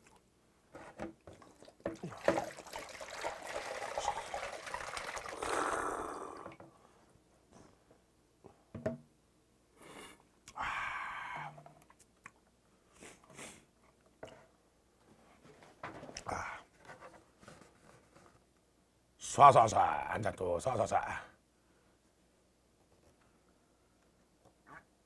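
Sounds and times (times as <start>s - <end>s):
liquid pouring into cup: 1.3s - 6.6s.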